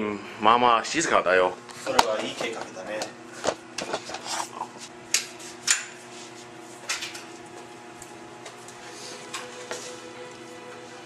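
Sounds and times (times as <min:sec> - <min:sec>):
footsteps on hard floor: 0:08.5 - 0:10.5.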